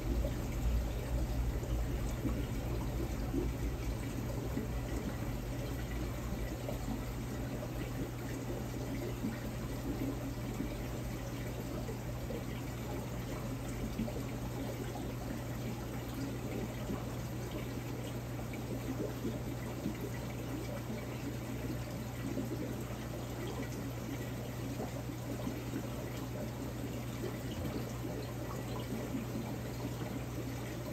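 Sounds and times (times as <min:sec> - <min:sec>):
low hum: 0:00.0 - 0:06.9
water rushing and trickling: 0:00.0 - 0:30.9.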